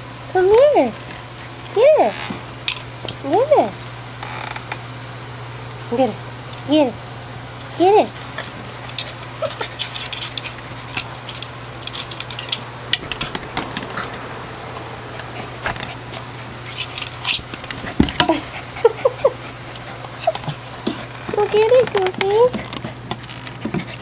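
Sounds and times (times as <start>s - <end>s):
dog whimpering: 18.2s - 22.7s.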